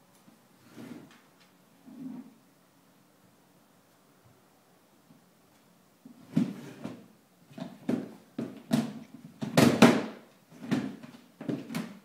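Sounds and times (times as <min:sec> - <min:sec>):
plastic box knocking and rattling: 0:07.6 - 0:12.0.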